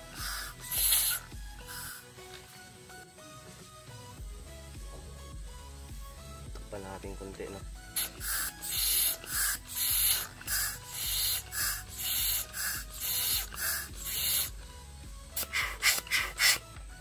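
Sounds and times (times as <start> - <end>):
hissing air puffs: 0.0 - 2.7, 7.8 - 14.6, 15.3 - 16.8.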